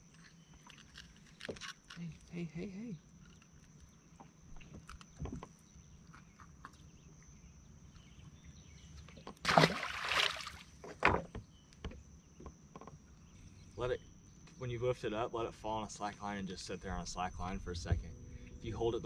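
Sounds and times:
fish splashing into water: 9.4 - 10.8.

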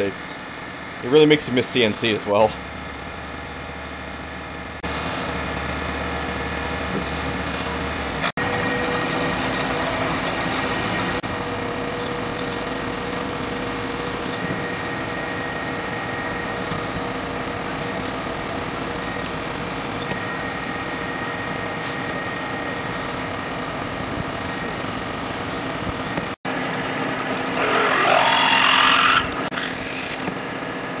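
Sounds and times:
milling machine hum: 2.6 - 31.0
drill boring into metal: 9.8 - 10.4, 11.2 - 14.4, 16.7 - 20.1, 23.1 - 26.2, 27.6 - 30.3.

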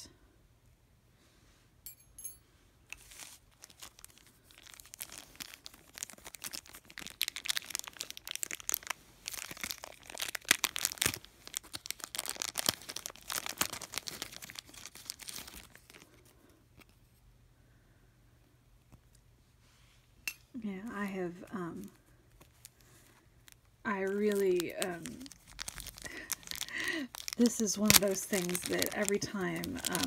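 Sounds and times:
plastic packaging crinkling: 3.0 - 17.0, 21.9 - 30.0.

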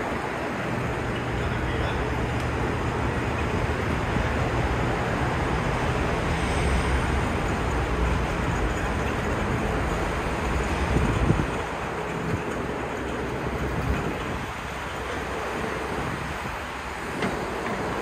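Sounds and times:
broad rushing noise: 0.0 - 18.0
low engine drone: 0.0 - 18.0.

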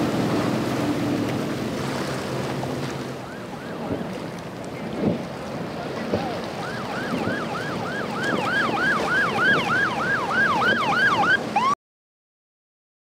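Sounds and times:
rush of wind and water: 0.0 - 11.8
boat siren yelping: 3.1 - 4.2, 5.8 - 11.8.

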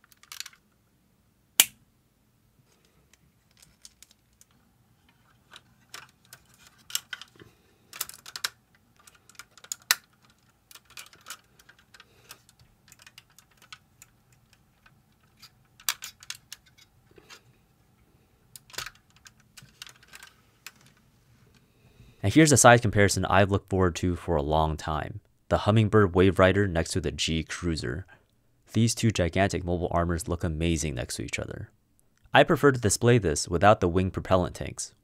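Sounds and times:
plastic figure parts clicking: 0.0 - 0.6, 5.5 - 16.9, 18.5 - 21.0.

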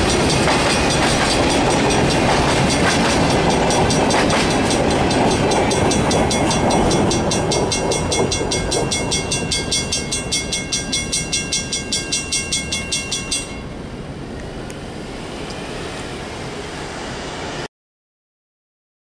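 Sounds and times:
crossing bell ringing rapidly: 0.0 - 13.7.

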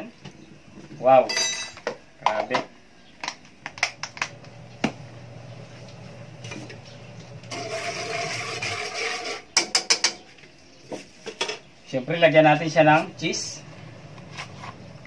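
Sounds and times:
whisk stirring in metal wok: 7.5 - 9.5
low steady hum: 11.5 - 15.0.

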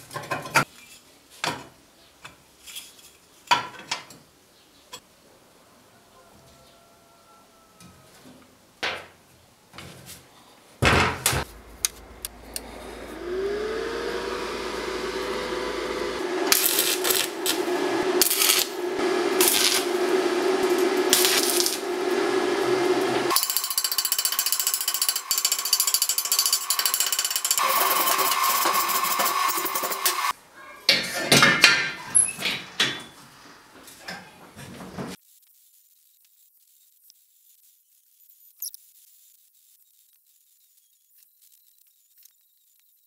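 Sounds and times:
electric power tool whining: 11.4 - 30.3
dense harsh grinding: 11.5 - 30.3
clicks: 11.8 - 12.7.

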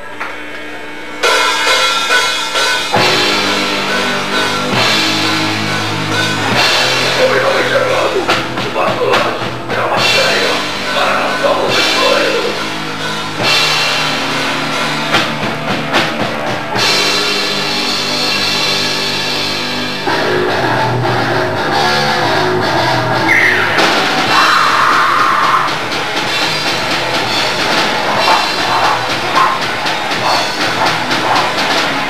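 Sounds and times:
bass guitar: 0.0 - 32.0
distorted electric guitar: 0.0 - 32.0
drum kit: 0.1 - 32.0
shouted vocals: 23.2 - 25.9.

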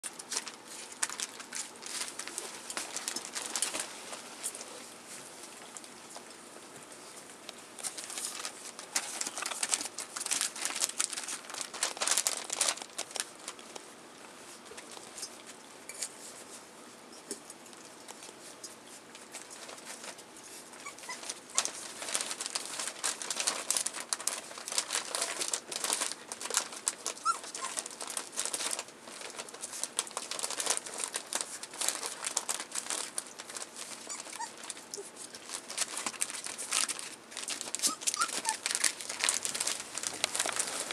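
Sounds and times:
newspaper crinkling: 0.0 - 6.3, 6.9 - 15.3, 19.1 - 40.9
puppies squeaking: 20.8 - 21.7, 27.2 - 27.8, 34.0 - 35.2, 37.8 - 38.6.

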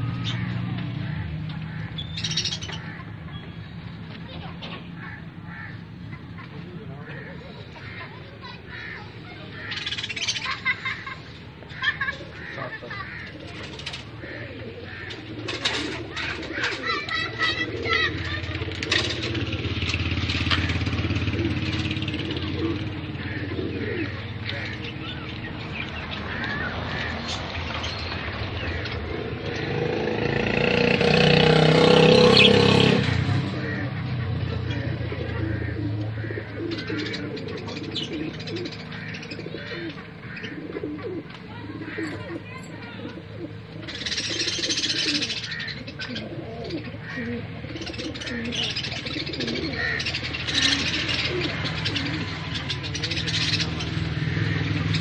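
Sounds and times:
parrots chirping and twittering: 0.0 - 55.0
low cooing notes: 13.3 - 25.3, 44.5 - 55.0.

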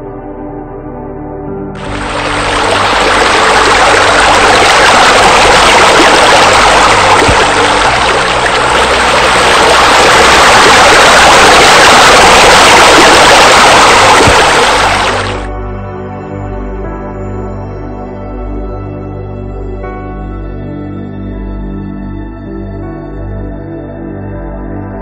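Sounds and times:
soft ambient music: 0.0 - 25.0
water pouring into pool: 1.8 - 15.5.

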